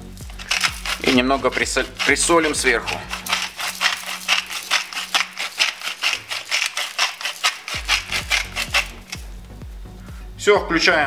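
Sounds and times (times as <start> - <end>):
salt shaker rattling: 0.0 - 9.3.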